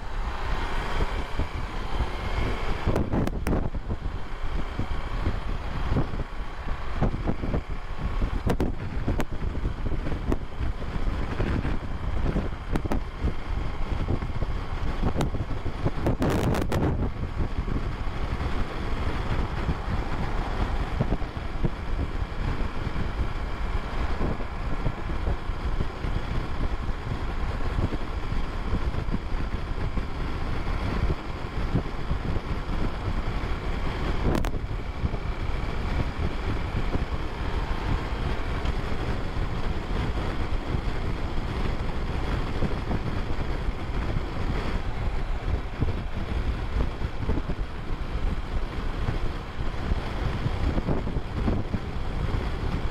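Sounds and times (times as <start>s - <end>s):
road noise: 0.0s - 52.9s
wind rushing on microphone: 0.0s - 52.9s.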